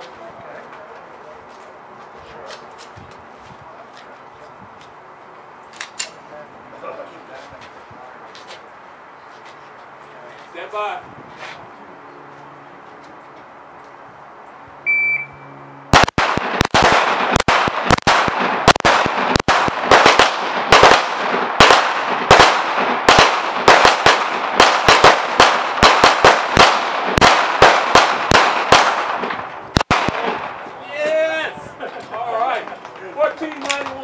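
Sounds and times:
electronic start beep: 0:14.9 - 0:15.5
handgun shots with echo: 0:16.0 - 0:30.4.

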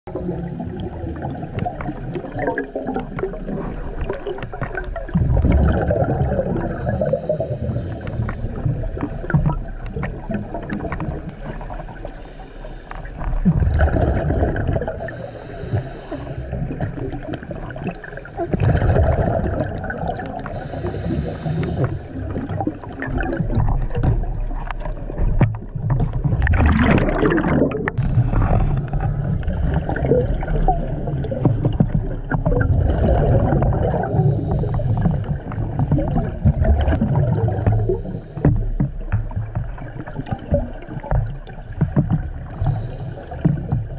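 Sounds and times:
exhaled air bubbling: 0:00.1 - 0:43.9
regulator inhalation hiss: 0:06.7 - 0:08.6, 0:15.0 - 0:16.5, 0:20.5 - 0:22.2.

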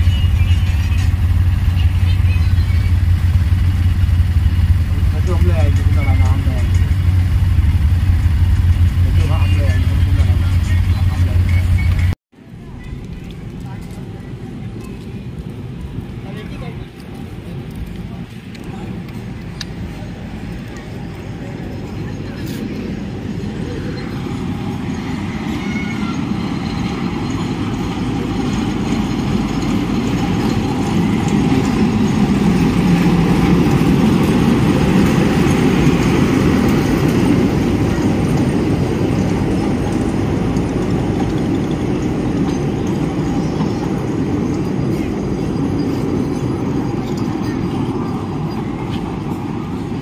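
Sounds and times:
toy train rumbling on rails: 0:00.0 - 0:50.0.

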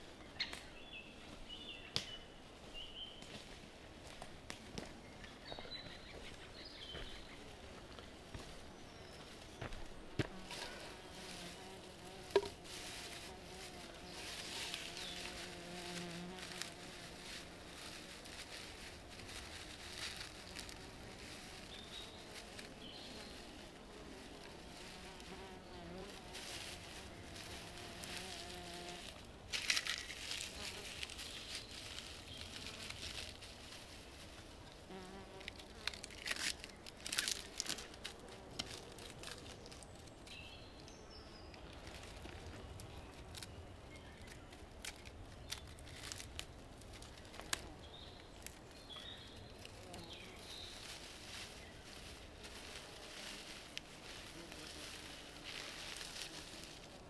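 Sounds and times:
flying insect buzzing: 0:10.2 - 0:33.4, 0:34.8 - 0:36.4, 0:49.6 - 0:57.0.

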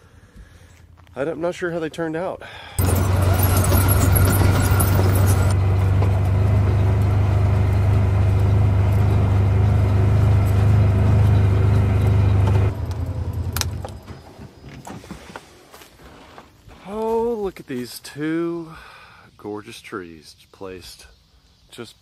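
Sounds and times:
utility vehicle engine running: 0:02.8 - 0:14.8
tires crackling over rock: 0:02.8 - 0:15.1.

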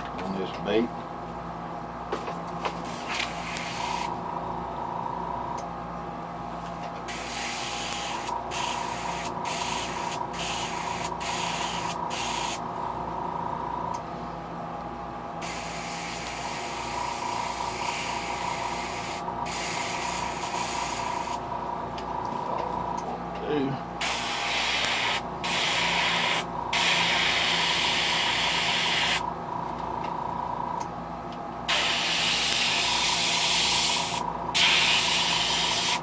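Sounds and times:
steady hum: 0:00.0 - 0:36.0
airbrush spraying in hissing bursts: 0:07.1 - 0:12.6, 0:15.4 - 0:21.4, 0:24.0 - 0:29.2, 0:31.7 - 0:36.0.

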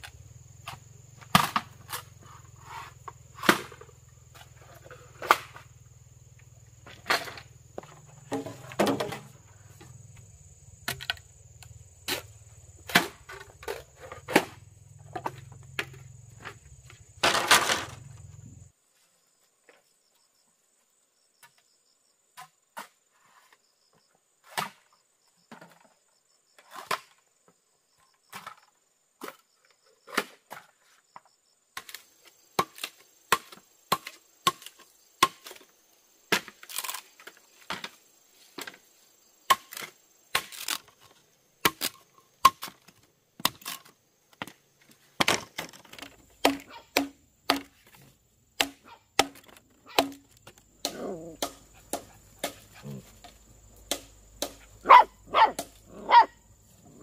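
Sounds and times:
insect chirring: 0:00.0 - 0:22.3, 0:31.0 - 0:57.0
hand tool striking wood: 0:00.6 - 0:02.1, 0:02.7 - 0:05.6, 0:32.6 - 0:35.6, 0:41.6 - 0:44.6, 0:45.2 - 0:55.9.

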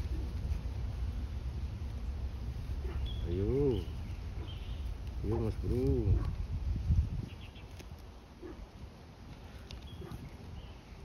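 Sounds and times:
low rumble on microphone: 0:00.0 - 0:07.6.

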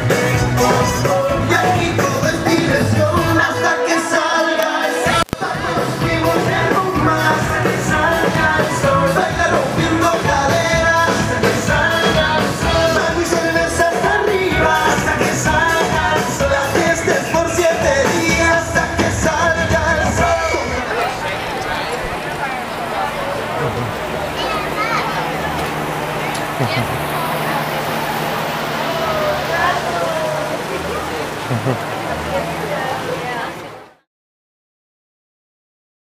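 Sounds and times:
loud music with singing: 0:00.0 - 0:21.3.

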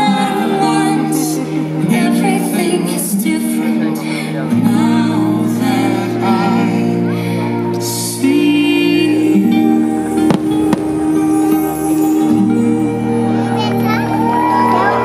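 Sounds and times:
music with singing voice: 0:00.0 - 0:15.0.

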